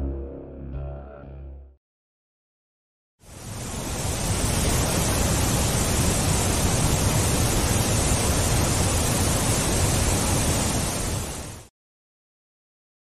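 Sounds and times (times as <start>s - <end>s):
steady rushing hiss: 3.2s - 11.7s.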